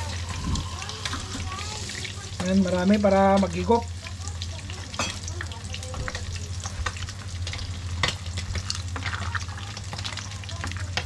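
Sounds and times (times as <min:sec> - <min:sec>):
low hum: 0:00.0 - 0:02.3
fish frying in oil: 0:00.0 - 0:11.0.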